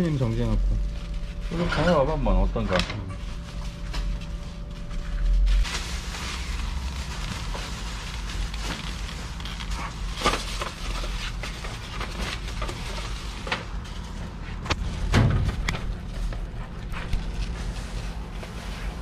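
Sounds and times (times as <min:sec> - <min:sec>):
low machine hum: 0:00.0 - 0:19.0
trays and plastic wrap clicking: 0:06.4 - 0:16.0.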